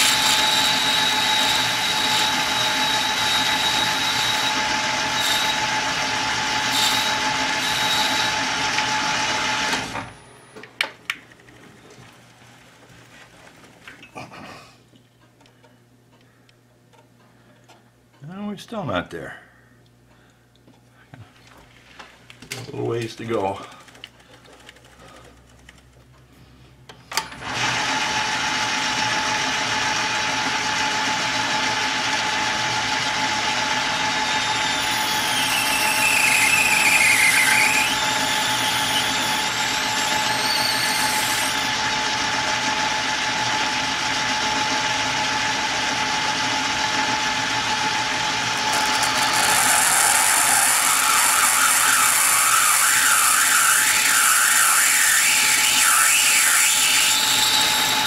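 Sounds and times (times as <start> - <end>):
cutting tool squealing: 0.0 - 5.8, 6.6 - 8.5, 34.2 - 41.7, 48.5 - 58.0
metal lathe whine: 0.0 - 10.3, 27.6 - 58.0.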